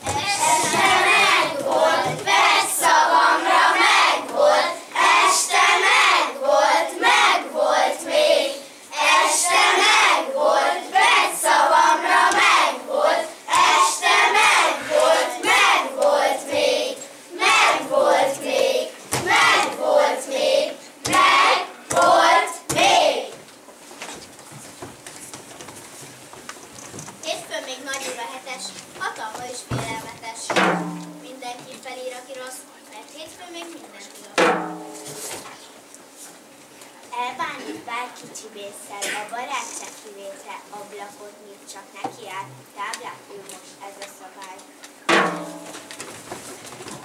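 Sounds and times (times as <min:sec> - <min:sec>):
children chanting in unison: 0:00.0 - 0:23.4.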